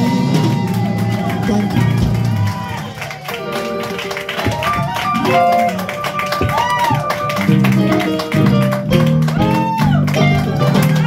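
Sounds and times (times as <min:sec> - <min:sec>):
music: 0:00.0 - 0:11.0
plucked guitar: 0:03.4 - 0:11.0.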